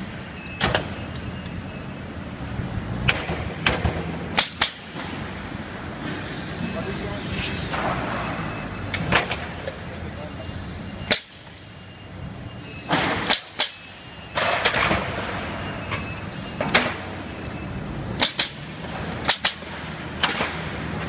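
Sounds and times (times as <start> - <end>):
nail gun firing: 3.1 - 5.0, 12.9 - 15.2, 18.2 - 20.7.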